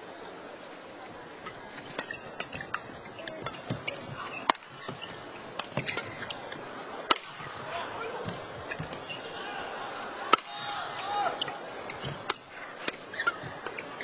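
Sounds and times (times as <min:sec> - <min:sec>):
indoor crowd murmur: 0:00.0 - 0:14.0
rackets hitting shuttlecock: 0:07.0 - 0:09.1, 0:10.3 - 0:10.6.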